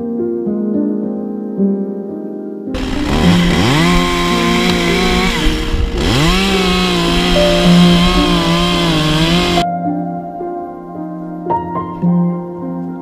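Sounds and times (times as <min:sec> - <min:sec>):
chainsaw cutting wood: 0:02.8 - 0:09.6.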